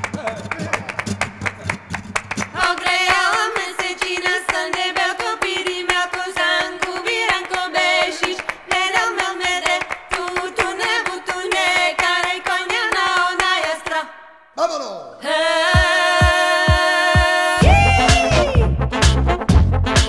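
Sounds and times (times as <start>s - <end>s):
person singing: 12.7s - 18.8s.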